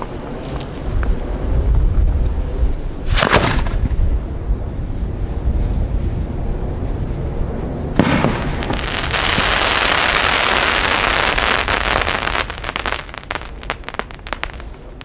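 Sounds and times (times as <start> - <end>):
firework crackling: 8.0 - 15.0.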